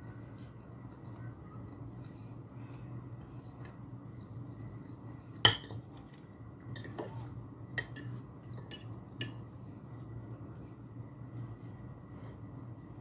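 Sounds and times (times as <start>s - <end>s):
cutlery clinking on a plate: 5.5s - 5.8s.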